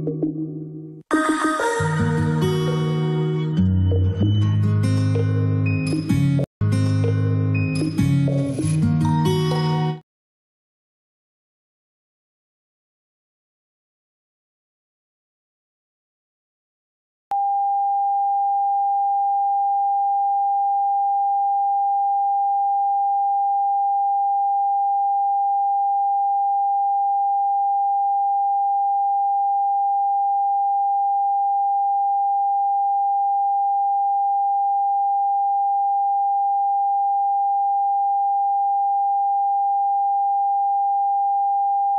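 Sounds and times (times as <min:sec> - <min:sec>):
steady sine test tone: 0:17.3 - 0:41.9.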